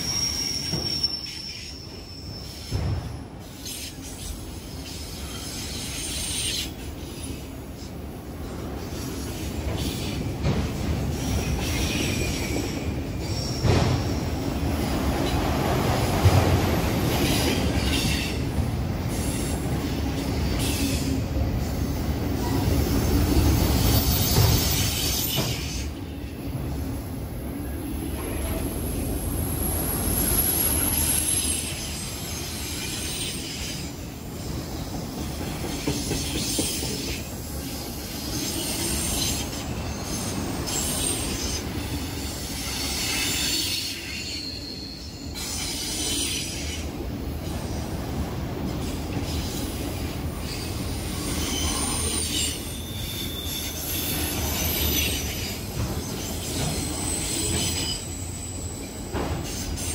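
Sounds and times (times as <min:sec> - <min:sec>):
high-pitched wheel squeal: 0:00.0 - 0:02.8, 0:50.5 - 0:59.9
steel wheels rumbling on rail: 0:00.0 - 0:59.9.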